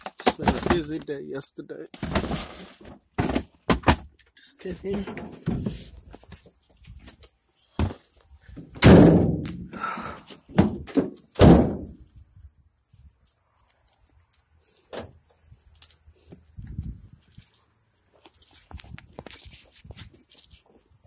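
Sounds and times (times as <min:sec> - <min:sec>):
plastic case thunking down: 0:00.0 - 0:01.0, 0:02.0 - 0:04.1, 0:04.9 - 0:05.8, 0:07.8 - 0:08.0, 0:08.8 - 0:09.6, 0:10.5 - 0:11.9.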